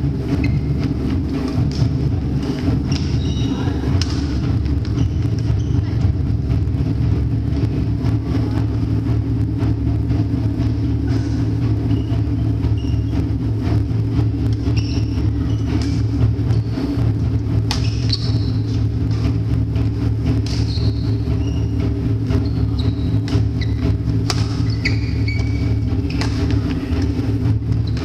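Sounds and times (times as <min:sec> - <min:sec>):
steady low rumble: 0:00.0 - 0:28.0
shoes squeaking on wooden court: 0:00.2 - 0:06.2, 0:11.1 - 0:13.4, 0:14.4 - 0:16.8, 0:17.6 - 0:19.4, 0:20.2 - 0:28.0
rackets striking shuttlecock: 0:02.5 - 0:05.0, 0:17.6 - 0:18.4, 0:20.4 - 0:21.0, 0:24.2 - 0:27.2.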